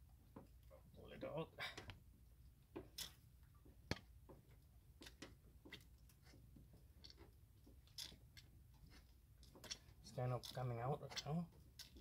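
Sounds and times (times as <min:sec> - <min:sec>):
faint clicks and knocks: 0:02.7 - 0:12.0.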